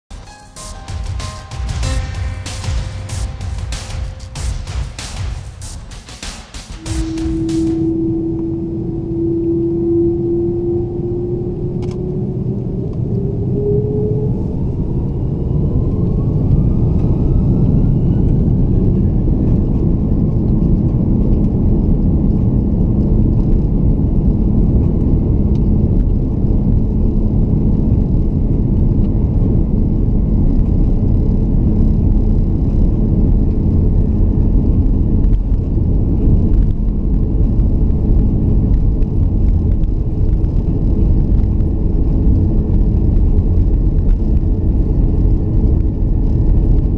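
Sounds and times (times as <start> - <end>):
jet engines spooling up: 0.6 - 20.4
loud engine roar and rumble: 6.8 - 46.9.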